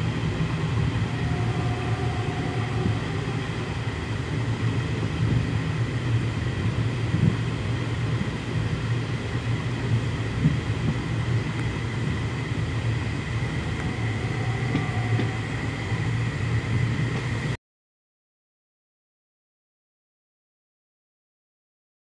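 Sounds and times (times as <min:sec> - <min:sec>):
thin steady whine: 0:00.0 - 0:17.6
train wheels rumbling on track: 0:00.0 - 0:17.6.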